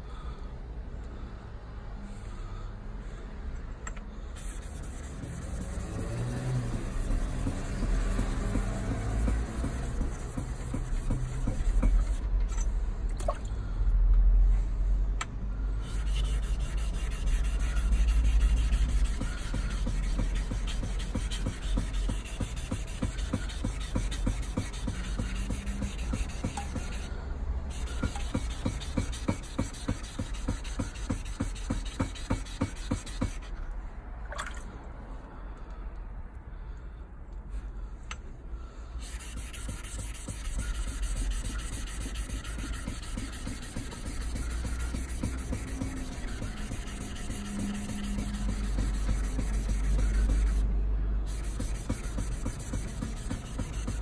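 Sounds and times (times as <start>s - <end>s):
blade rubbing on gritty plate: 4.4s - 12.2s, 15.9s - 27.1s, 39.0s - 50.6s, 51.3s - 54.0s.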